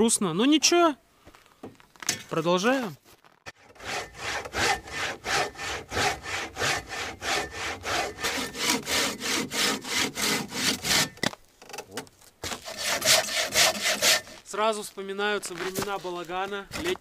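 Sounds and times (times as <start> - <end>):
hand saw cutting log: 3.5 - 11.3, 12.4 - 14.5.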